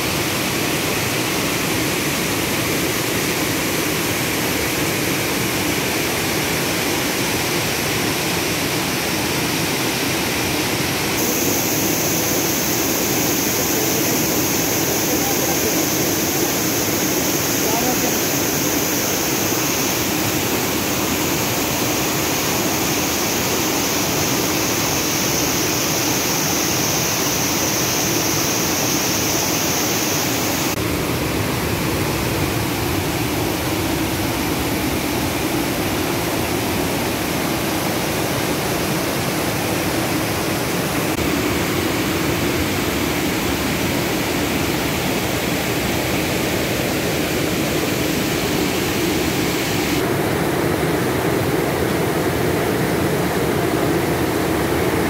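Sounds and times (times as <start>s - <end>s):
waterfall rushing: 0.0s - 55.0s.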